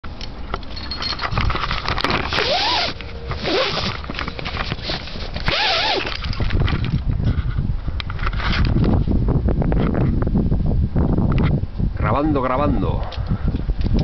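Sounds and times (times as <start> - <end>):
low wind rumble: 0.0 - 14.0
microphone handling noise: 1.3 - 14.0
climbing rope rasping squeal: 2.2 - 4.0, 4.6 - 6.2.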